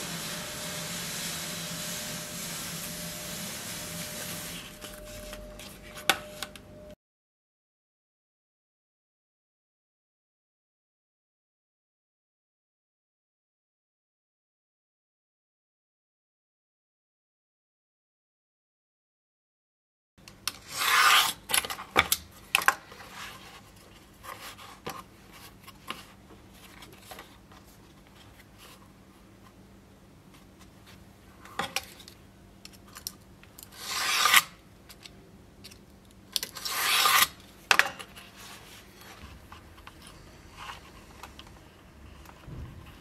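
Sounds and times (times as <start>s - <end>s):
blade rasping through leather: 36.6s - 37.4s.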